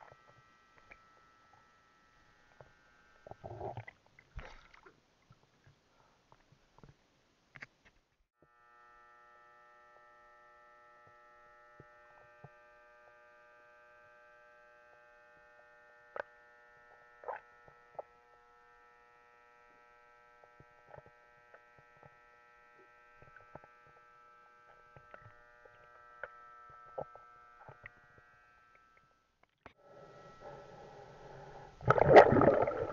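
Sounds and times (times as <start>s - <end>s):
underwater electronic hum: 0.0s - 6.9s, 8.4s - 32.9s.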